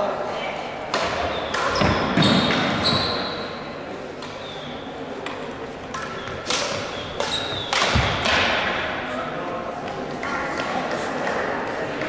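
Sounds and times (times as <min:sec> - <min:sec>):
sneaker squeaks on wooden floor: 0:01.3 - 0:03.6, 0:06.0 - 0:08.2.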